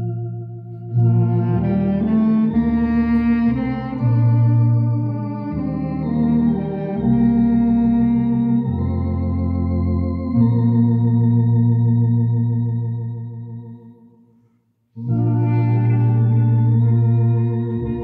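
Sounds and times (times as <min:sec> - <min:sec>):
clarinet playing: 0:00.0 - 0:10.9, 0:15.0 - 0:18.0
electronic organ chords: 0:00.0 - 0:14.3, 0:15.0 - 0:18.0.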